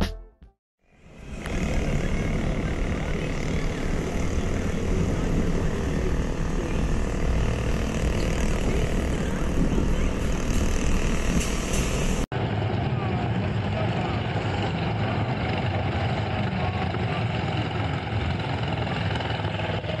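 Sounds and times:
car engine and road noise: 0.8 - 12.4.

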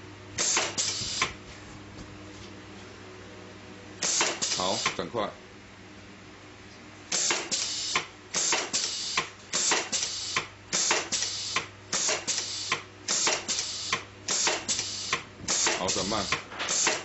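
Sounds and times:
low machine hum: 0.0 - 17.0
tagging machine mechanical bursts: 0.4 - 1.3, 4.0 - 5.0, 7.1 - 17.0.

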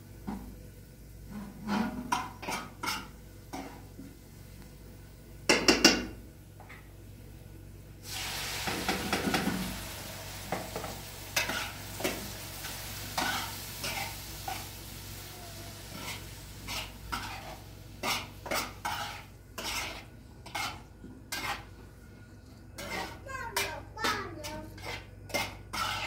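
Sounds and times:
food sizzling in a pan: 0.0 - 22.0, 22.8 - 26.0
metal utensil clattering and scraping: 15.9 - 21.7, 22.8 - 26.0.

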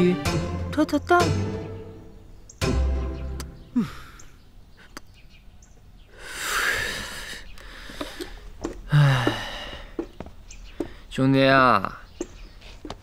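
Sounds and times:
man sighing: 3.7 - 4.4, 6.2 - 10.0.

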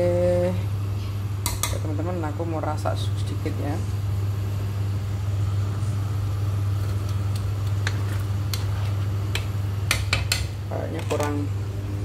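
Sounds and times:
appliance motor hum: 0.0 - 12.0.

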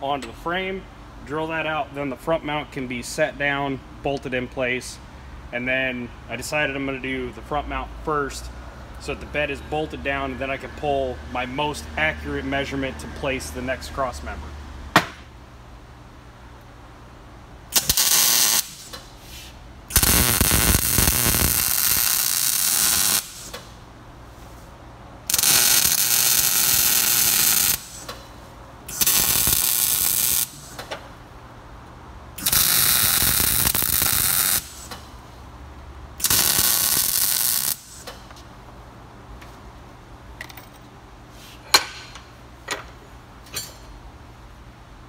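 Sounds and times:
welder arc crackling and hissing: 17.7 - 23.8, 25.2 - 28.3, 28.9 - 30.9, 32.4 - 35.2, 36.2 - 38.3.

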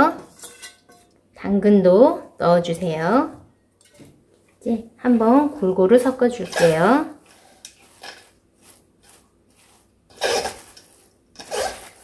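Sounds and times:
shredded vegetables rustling in bowl: 5.9 - 12.0.

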